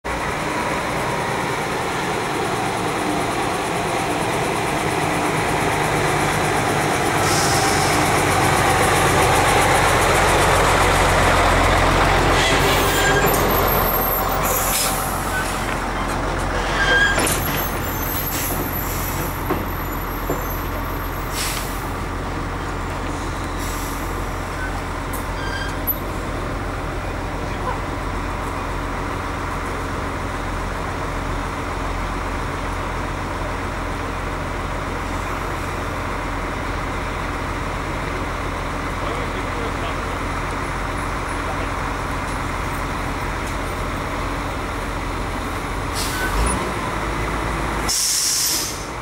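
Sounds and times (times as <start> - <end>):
diesel truck engine passing: 0.1 - 49.0
air brake hisses: 7.2 - 8.1, 14.4 - 15.7, 21.2 - 21.9, 23.1 - 24.3, 45.9 - 46.5, 47.9 - 49.0.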